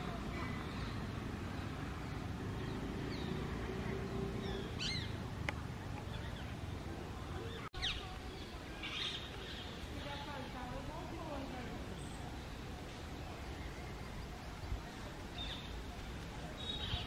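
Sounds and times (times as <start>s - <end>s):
parakeets calling: 4.2s - 5.2s.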